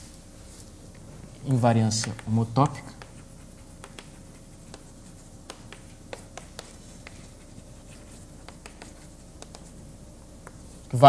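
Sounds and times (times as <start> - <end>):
faint steady hum: 0.0 - 11.0
taps of writing on a board: 2.9 - 3.2, 3.8 - 7.3, 8.0 - 9.7.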